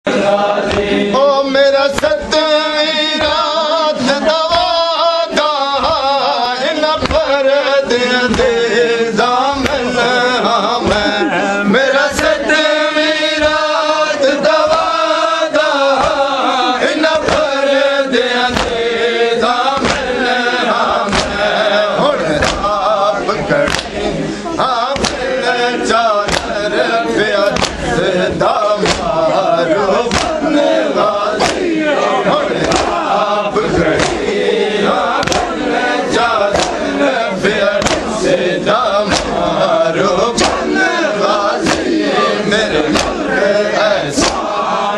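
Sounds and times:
men chanting a lament: 0:00.0 - 0:44.9
hands slapping chests: 0:00.6 - 0:01.0, 0:01.8 - 0:02.4, 0:03.1 - 0:03.6, 0:04.4 - 0:04.8, 0:06.9 - 0:07.4, 0:08.2 - 0:08.7, 0:09.4 - 0:10.0, 0:10.8 - 0:11.2, 0:12.0 - 0:12.5, 0:13.4 - 0:13.8, 0:14.4 - 0:17.7, 0:18.3 - 0:26.8, 0:27.4 - 0:31.8, 0:32.5 - 0:43.3, 0:44.0 - 0:44.6.

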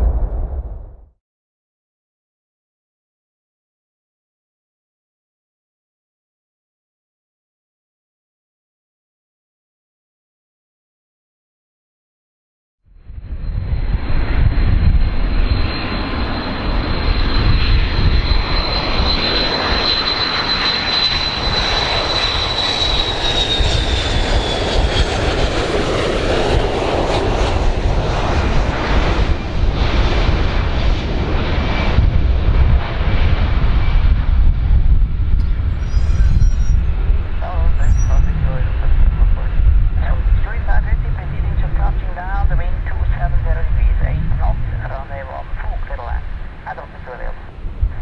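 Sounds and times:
high engine whine gliding down: 0:12.9 - 0:42.6
jet engines on landing approach: 0:12.9 - 0:48.0.

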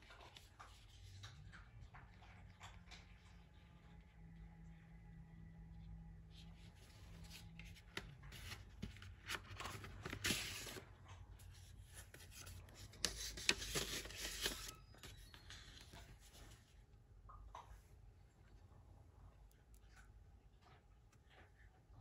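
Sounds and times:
paper sleeve rustling: 0:06.6 - 0:10.8, 0:11.6 - 0:16.6.

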